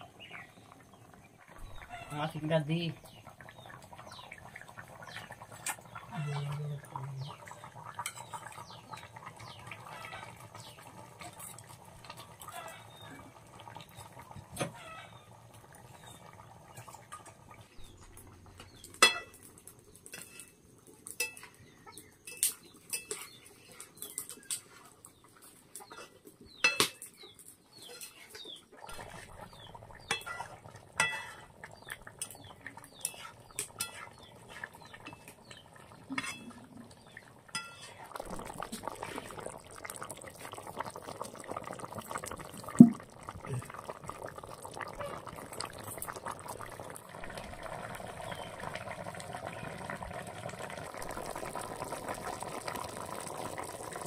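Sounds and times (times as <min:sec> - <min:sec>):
metal pots and dishes clanking: 0:08.0 - 0:08.6, 0:18.6 - 0:19.5, 0:20.1 - 0:24.8, 0:25.8 - 0:29.4, 0:30.0 - 0:31.5, 0:32.2 - 0:38.9
chickens clucking: 0:14.5 - 0:15.3.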